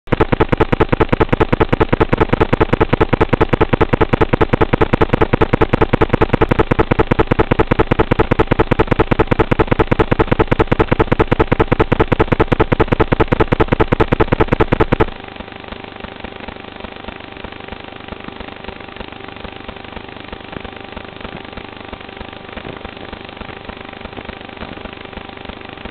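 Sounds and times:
drone flying hum: 0:00.1 - 0:25.9
drone pulsing buzz: 0:00.1 - 0:25.9.

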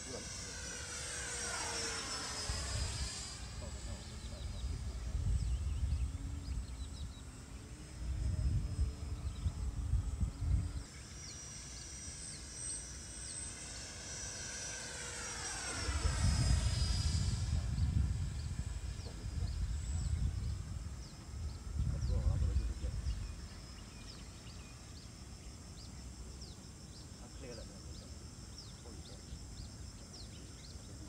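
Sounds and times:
model jet whine flying past: 0:00.0 - 0:31.0
wind on microphone: 0:01.6 - 0:10.9, 0:15.6 - 0:23.9.

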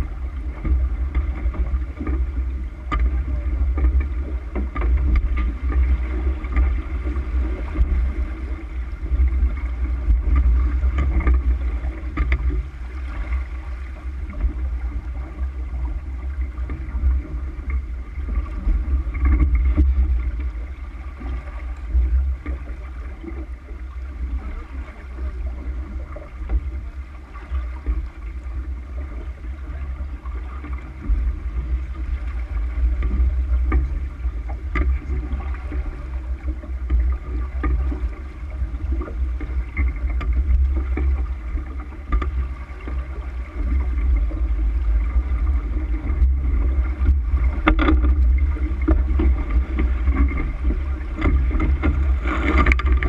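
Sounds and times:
water rushing along a hull: 0:00.0 - 0:53.0
wind rumble on microphone: 0:00.0 - 0:53.0
small knocks: 0:33.0 - 0:35.5, 0:39.0 - 0:43.0, 0:47.0 - 0:53.0.

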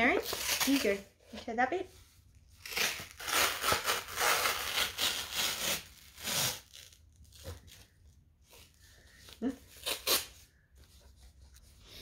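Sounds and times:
cardboard ripping: 0:00.0 - 0:01.0, 0:02.6 - 0:07.9.

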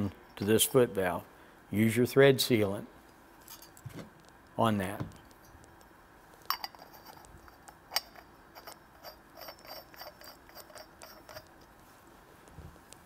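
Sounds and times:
threads ticking as pipe turns: 0:06.5 - 0:11.8.

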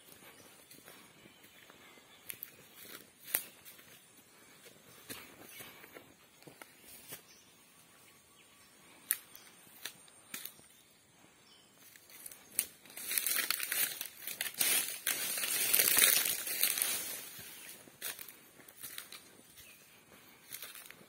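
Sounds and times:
footsteps crunching through dry leaves: 0:00.0 - 0:07.4, 0:11.8 - 0:21.0.

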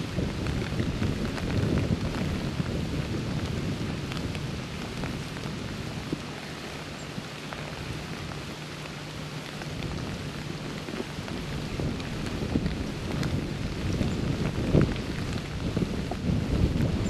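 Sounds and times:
freezing rain pattering: 0:00.0 - 0:17.0
ice ticking on branches and leaves: 0:00.0 - 0:17.0.

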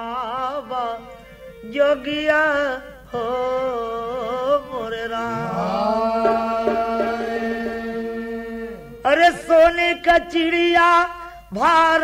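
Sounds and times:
person singing wordless folk melody: 0:00.0 - 0:12.0
steady drone: 0:05.3 - 0:09.1
light drum taps: 0:06.2 - 0:07.9.

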